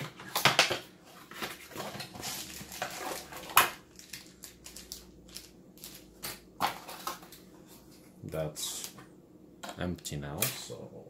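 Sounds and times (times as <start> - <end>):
cardboard and plastic rustling: 0.0 - 8.0.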